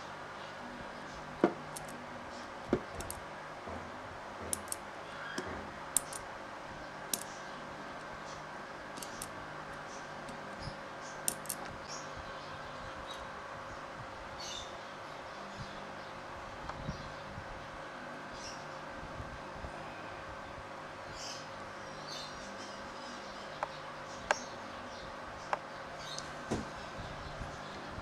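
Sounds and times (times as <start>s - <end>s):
small metallic clicks and taps: 4.5s - 4.8s, 6.0s - 6.2s, 9.0s - 9.3s, 11.3s - 11.7s.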